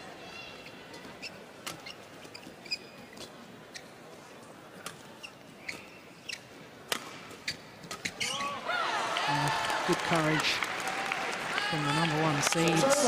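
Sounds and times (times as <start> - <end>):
shoes squeaking on court: 0.6 - 8.5.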